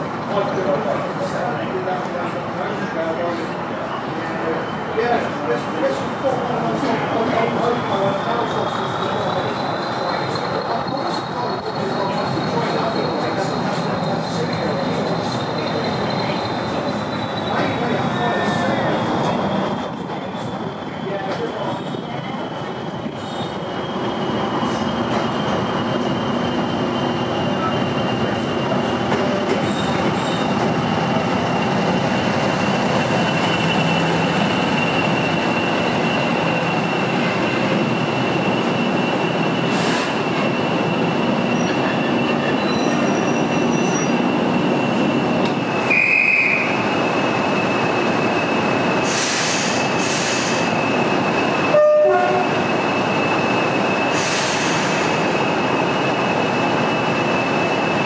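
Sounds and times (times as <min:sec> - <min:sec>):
train wheels rumbling on rail: 0:00.0 - 0:58.0
sharp squeak: 0:23.2 - 0:23.6, 0:29.6 - 0:30.5, 0:42.5 - 0:44.3
high-pitched wheel squeal: 0:40.3 - 0:45.0.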